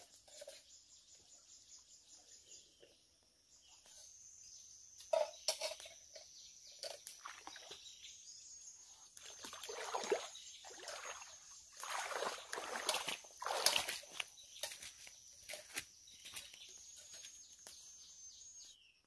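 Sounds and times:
bare feet splashing in stream: 9.2s - 16.4s.

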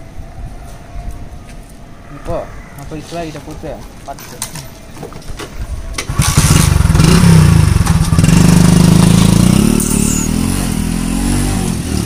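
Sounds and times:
motorcycle engine pulling away: 6.0s - 12.0s.

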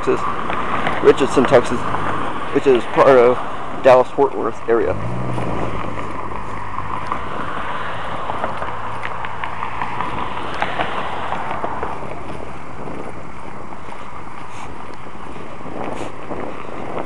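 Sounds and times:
steady rushing noise: 0.0s - 17.0s
wind buffeting microphone: 0.0s - 17.0s
low engine hum: 4.6s - 17.0s.

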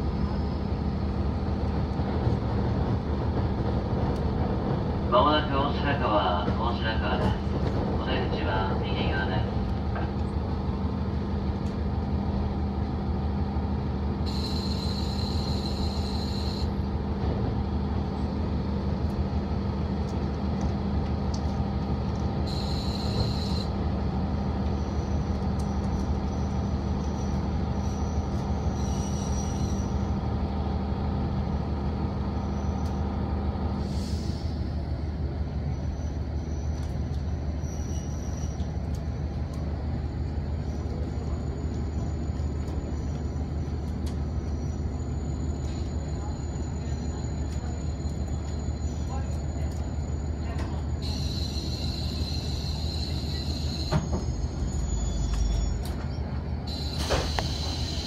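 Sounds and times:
diesel railcar engine drone: 0.0s - 58.0s
high-pitched wheel squeals: 14.3s - 16.7s, 24.8s - 30.0s, 37.6s - 38.7s, 51.0s - 58.0s.

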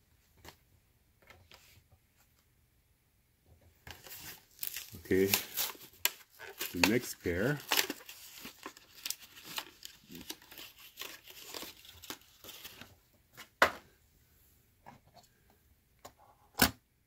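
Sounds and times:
hands rustling toy cars: 3.9s - 13.5s.

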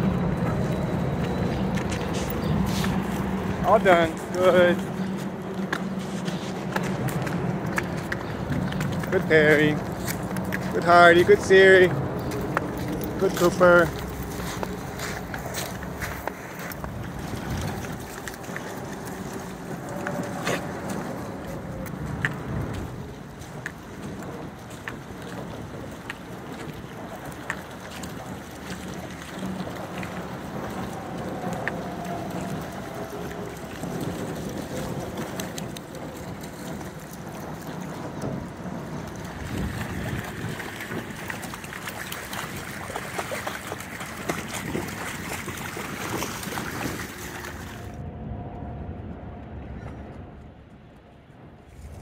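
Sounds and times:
rushing river water: 0.0s - 48.0s
splashing through shallow water: 0.0s - 48.0s.

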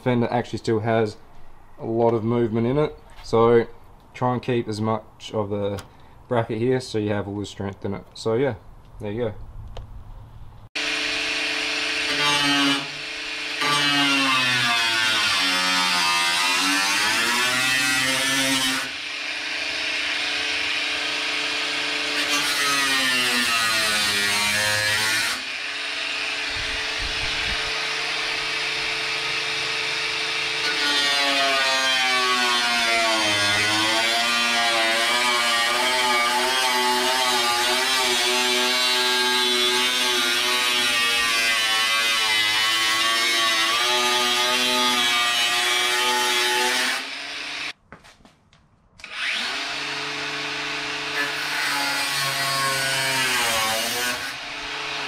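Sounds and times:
angle grinder cutting metal: 10.8s - 47.8s, 49.0s - 55.0s.

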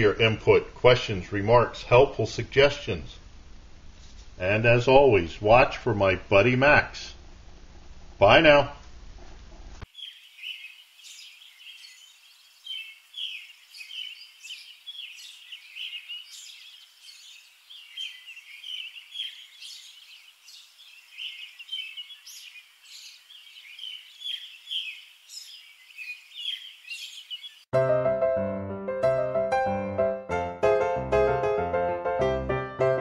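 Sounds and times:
small birds chirping: 9.8s - 27.7s.

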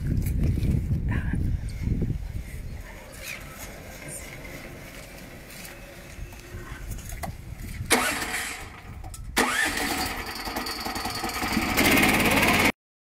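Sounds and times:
sawmill engine starting and running: 7.8s - 12.8s.

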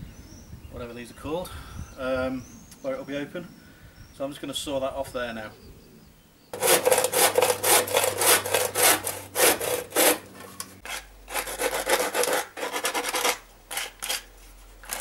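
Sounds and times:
sanding block rubbing wood: 6.6s - 13.9s
handsaw cutting bamboo: 6.6s - 15.0s.

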